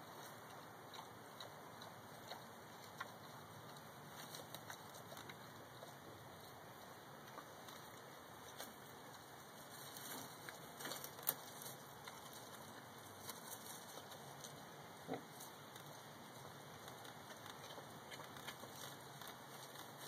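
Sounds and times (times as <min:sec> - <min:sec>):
pig munching and rooting: 0:00.0 - 0:20.0.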